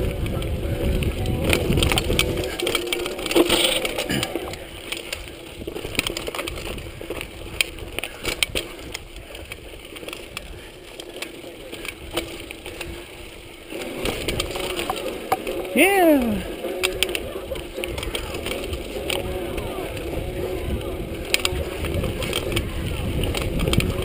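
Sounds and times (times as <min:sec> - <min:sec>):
bike rattling over bumps: 0:00.0 - 0:15.8, 0:16.4 - 0:24.0
bike tyres crunching over dirt: 0:00.0 - 0:24.0.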